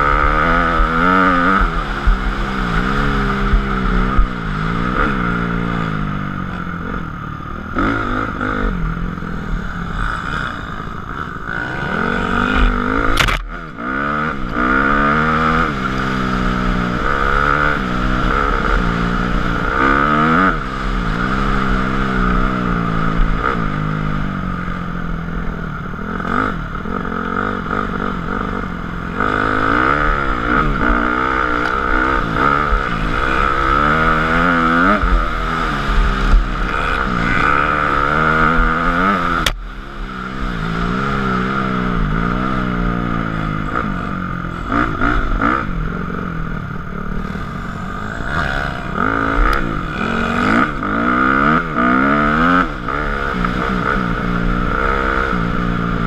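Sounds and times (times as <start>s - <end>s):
dirt bike engine revving: 0.0s - 56.0s
sharp click: 13.0s - 13.5s.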